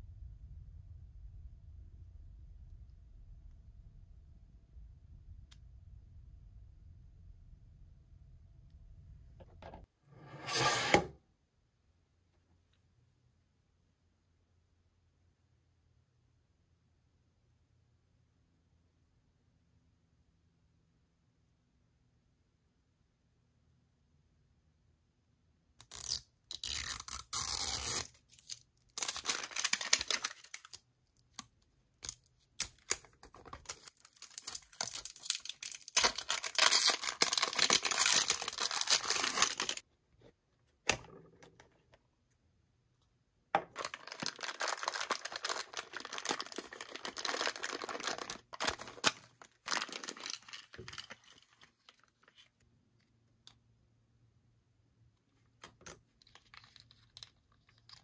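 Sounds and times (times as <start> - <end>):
packaging tearing and crinkling: 25.8 - 30.8, 33.6 - 39.8, 43.7 - 51.5.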